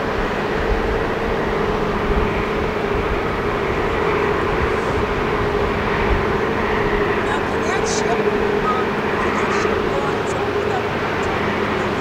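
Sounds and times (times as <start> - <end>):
boat diesel engines droning: 0.0 - 12.0.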